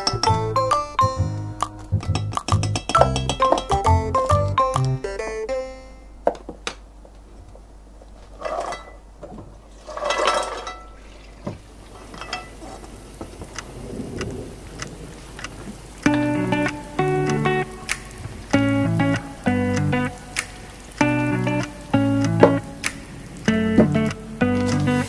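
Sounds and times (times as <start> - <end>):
background music: 0.0 - 6.2, 16.1 - 25.0
pot clicking and knocking: 1.7 - 4.9
tap water running into pot: 16.0 - 25.0.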